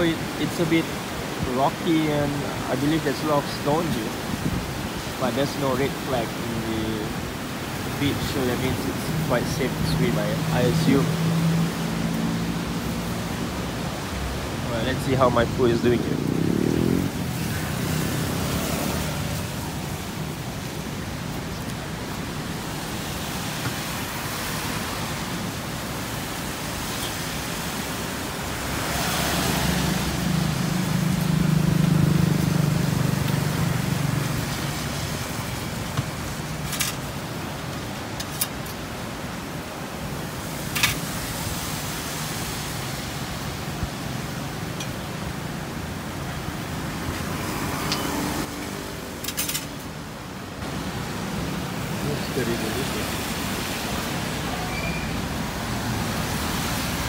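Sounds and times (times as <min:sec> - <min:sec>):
steady outdoor hiss: 0:00.0 - 0:57.0
vehicle engine drone passing: 0:09.7 - 0:13.7, 0:15.0 - 0:19.9, 0:28.5 - 0:35.4.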